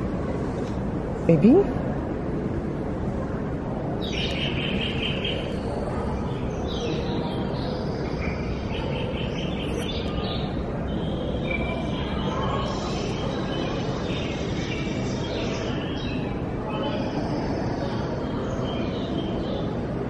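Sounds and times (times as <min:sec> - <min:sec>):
birds chirping and trilling: 0:04.0 - 0:20.0.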